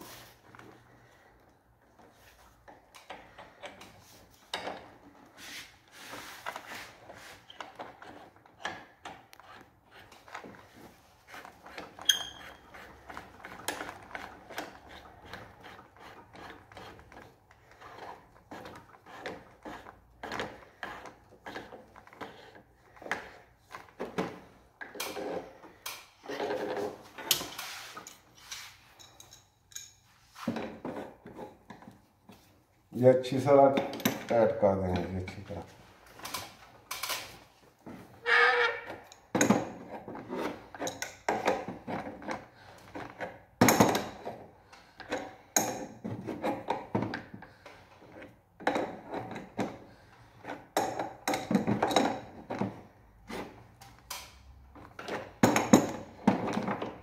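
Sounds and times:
pipes rubbing and tapping: 0:02.0 - 0:23.4, 0:37.9 - 0:42.4.

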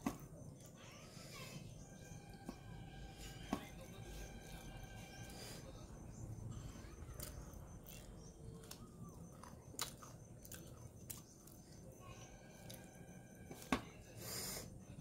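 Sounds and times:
low steady hum: 0:00.0 - 0:15.0
chewing rice: 0:06.5 - 0:13.8.

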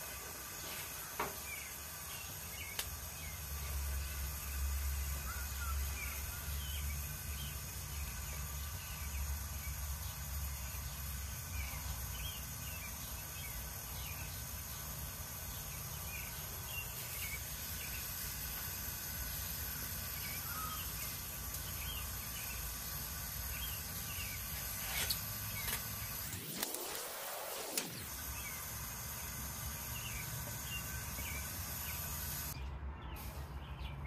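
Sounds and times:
gas burner flame rumbling: 0:00.0 - 0:32.6
small birds chirping: 0:00.0 - 0:34.0.

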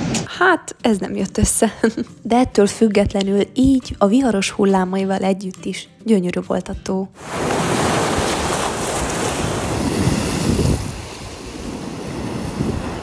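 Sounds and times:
waves breaking on rocky shore: 0:07.2 - 0:13.0
wind buffeting microphone: 0:07.6 - 0:13.0.

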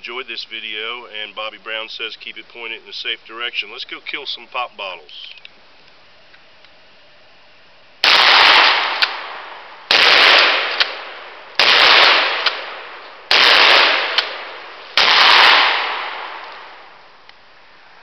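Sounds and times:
shotgun shots echoing: 0:08.0 - 0:17.1.

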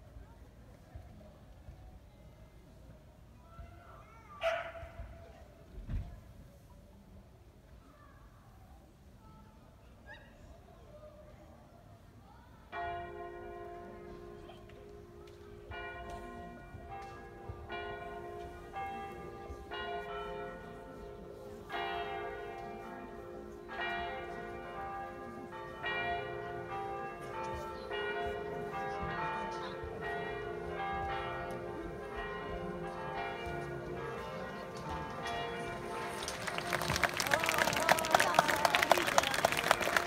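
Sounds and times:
church bells tolling: 0:12.7 - 0:38.4.

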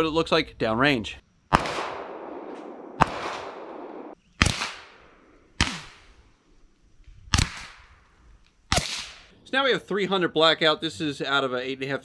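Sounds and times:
pistol shots with echo: 0:01.5 - 0:06.1.

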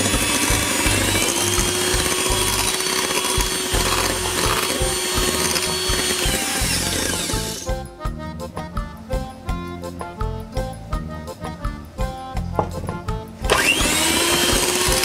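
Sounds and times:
electric hand mixer running: 0:00.0 - 0:07.7, 0:13.5 - 0:15.0.

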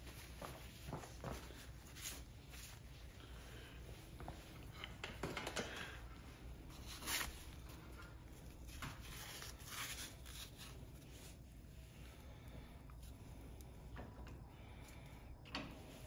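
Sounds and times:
rustling and scraping in a vise: 0:00.0 - 0:12.2.

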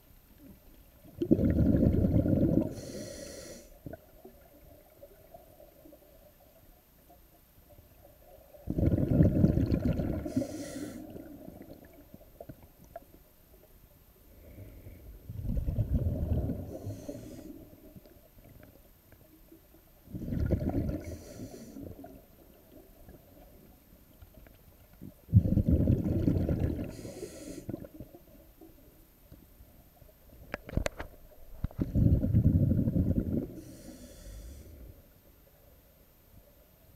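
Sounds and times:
exhaled bubbles rumbling underwater: 0:00.4 - 0:03.1, 0:03.8 - 0:07.1, 0:07.7 - 0:13.7, 0:14.4 - 0:28.9, 0:30.7 - 0:35.0
regulator inhale hiss: 0:02.6 - 0:03.8, 0:10.1 - 0:11.3, 0:14.3 - 0:15.2, 0:16.6 - 0:17.8, 0:20.9 - 0:22.1, 0:26.8 - 0:27.8, 0:33.5 - 0:35.2.

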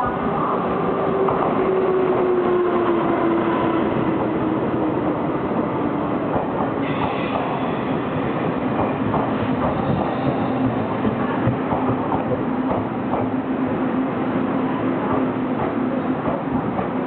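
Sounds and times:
train pulling into station: 0:00.0 - 0:17.0.

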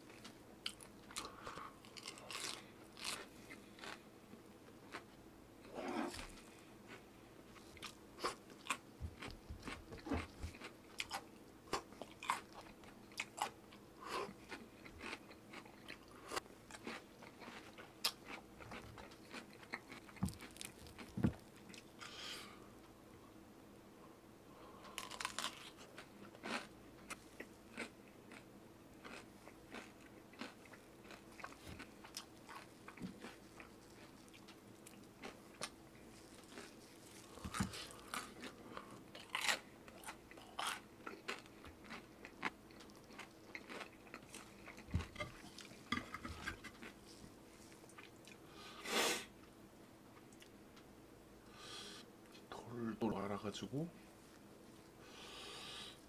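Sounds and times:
person chewing crunchy food: 0:00.0 - 0:22.5, 0:24.7 - 0:48.6
faint steady hum: 0:00.0 - 0:56.0.

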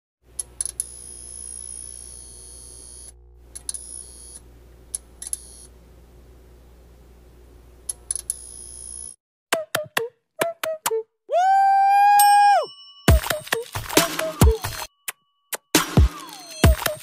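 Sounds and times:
low steady hum: 0:02.9 - 0:08.1.

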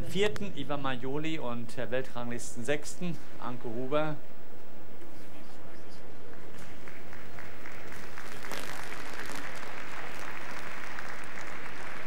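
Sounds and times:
crowd applauding: 0:06.2 - 0:12.0.

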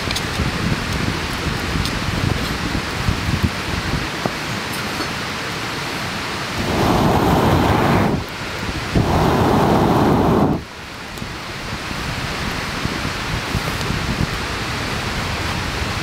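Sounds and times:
campfire crackling: 0:00.0 - 0:16.0
air blowing through pipe: 0:06.5 - 0:10.7.

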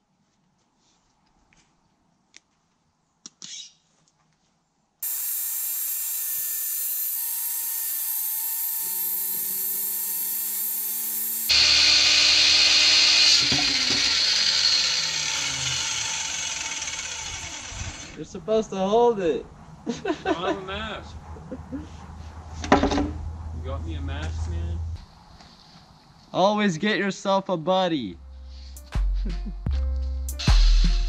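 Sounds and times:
circular saw cutting board: 0:05.0 - 0:18.2.

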